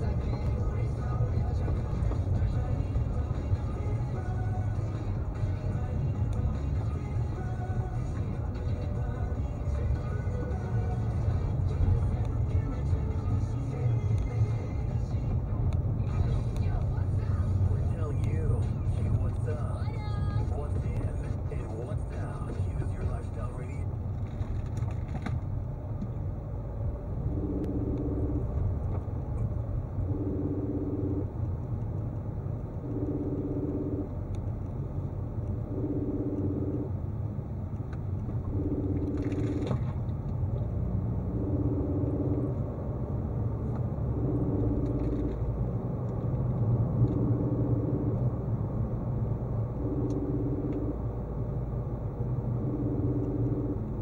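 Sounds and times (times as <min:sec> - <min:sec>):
car engine and tyre rumble: 0:00.0 - 0:54.0
repeating tone: 0:32.8 - 0:34.1.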